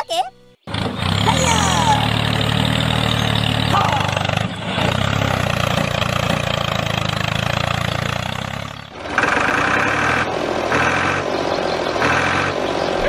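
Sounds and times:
tractor engine idling: 0:00.6 - 0:13.0.

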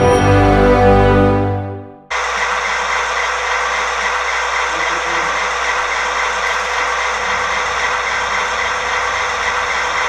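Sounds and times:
diesel engine idle sound: 0:02.1 - 0:10.0.

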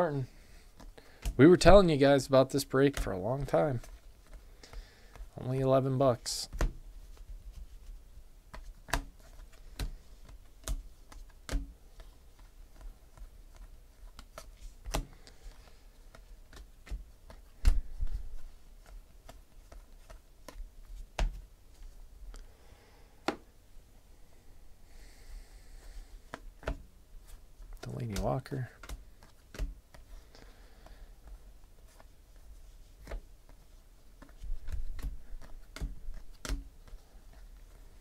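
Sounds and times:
card stack tapped and squared: 0:00.8 - 0:01.9, 0:06.5 - 0:06.8, 0:08.5 - 0:18.0, 0:18.8 - 0:21.5, 0:23.2 - 0:23.5, 0:26.2 - 0:26.9, 0:27.7 - 0:30.2, 0:32.9 - 0:33.6, 0:34.2 - 0:37.4
cards flicked with sharp clicks: 0:28.8 - 0:30.1.

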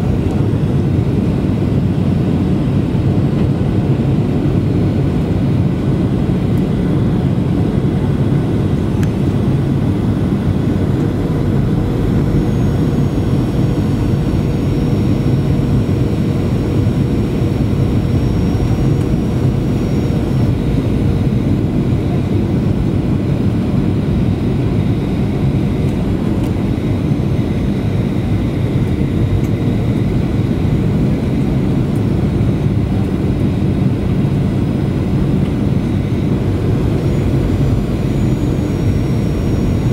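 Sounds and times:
airplane cabin engine rumble: 0:00.0 - 0:39.9
faint thin whine: 0:08.8 - 0:39.9.

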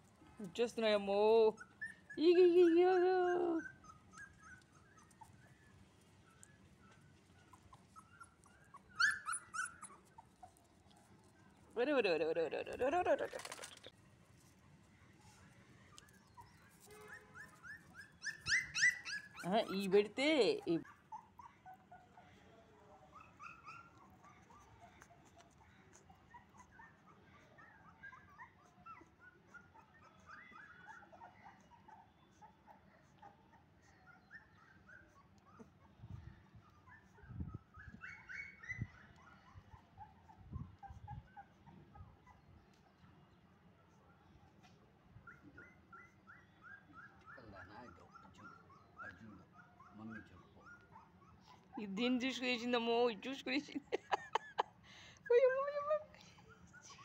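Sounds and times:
puppies squeaking and whimpering: 0:01.4 - 0:10.7, 0:15.8 - 0:22.2, 0:23.1 - 0:43.0, 0:45.2 - 0:52.0.

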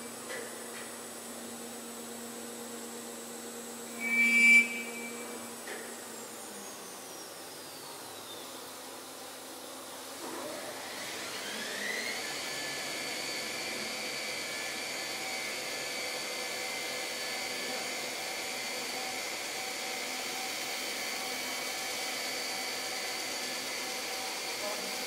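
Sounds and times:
belt sander whining on wood: 0:10.8 - 0:25.0.

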